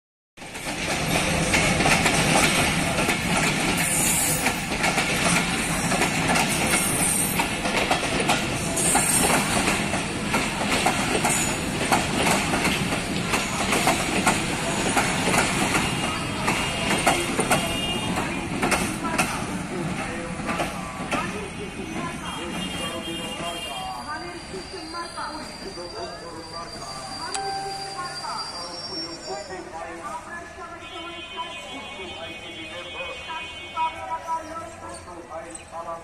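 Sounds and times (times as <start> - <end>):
train wheels clattering over rails: 0.4 - 23.6.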